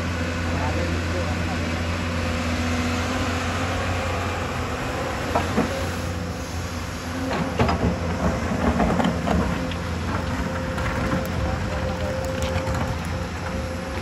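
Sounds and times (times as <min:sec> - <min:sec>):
excavator diesel engine running: 0:00.0 - 0:14.0
excavator bucket clanks: 0:07.3 - 0:13.6.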